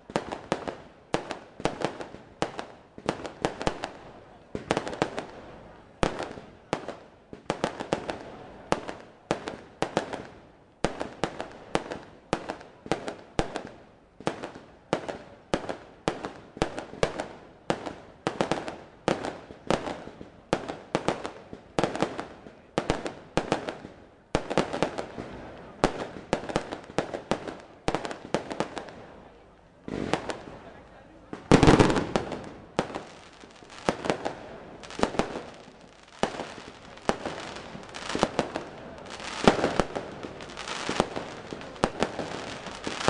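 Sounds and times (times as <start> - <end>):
firework shells bursting: 31.5 - 43.0.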